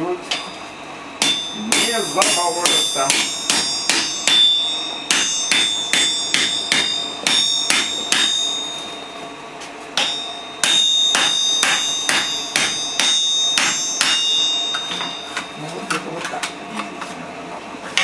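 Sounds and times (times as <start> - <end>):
anvil ringing: 0.3 - 9.4, 10.0 - 15.7
hammer striking steel on anvil: 1.2 - 9.2, 9.9 - 15.6.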